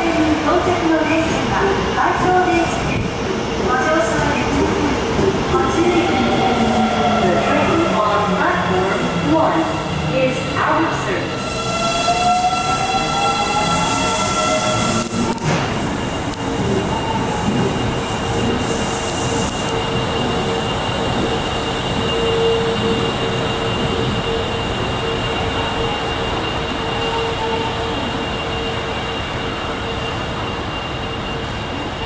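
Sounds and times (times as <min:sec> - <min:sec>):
subway train rumble: 0:00.0 - 0:32.0
train whine: 0:00.0 - 0:32.0.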